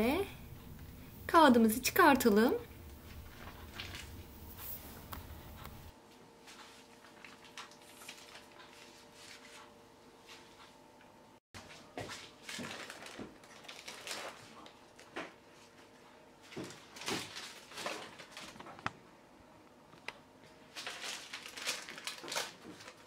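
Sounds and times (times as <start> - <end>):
baking paper rustling and crinkling: 3.0 - 10.7, 11.6 - 18.9, 20.5 - 23.0.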